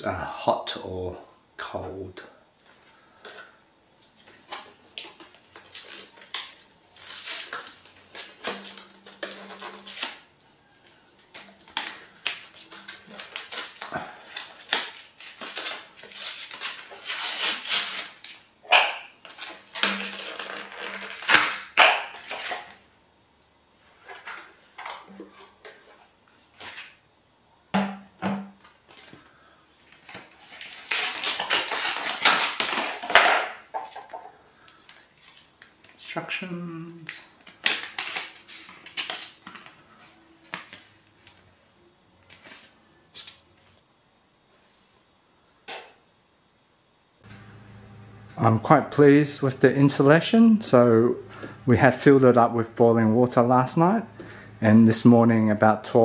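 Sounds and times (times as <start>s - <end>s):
paper rustling and crinkling: 4.1s - 18.4s, 29.8s - 36.2s, 37.1s - 41.5s, 42.2s - 43.8s.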